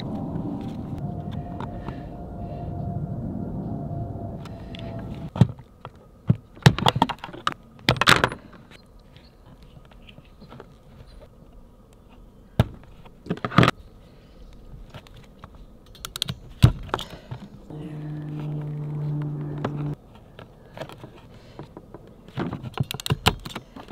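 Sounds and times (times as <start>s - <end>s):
hand tools clicking and snapping: 22.7s - 23.7s.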